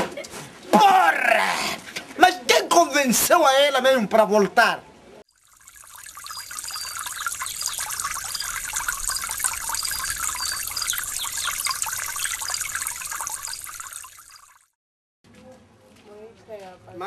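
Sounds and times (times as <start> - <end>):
water trickling: 5.3 - 14.8
small chirps: 5.4 - 14.7.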